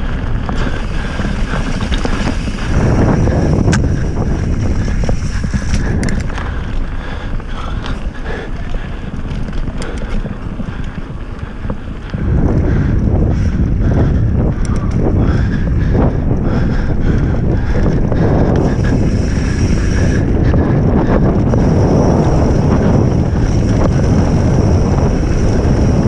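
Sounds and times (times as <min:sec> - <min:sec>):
tyres rolling on gravel: 0:00.0 - 0:13.3, 0:17.1 - 0:26.0
wind buffeting microphone: 0:00.0 - 0:26.0
small clicks and rattles: 0:00.4 - 0:06.9, 0:07.5 - 0:12.9, 0:14.5 - 0:15.1.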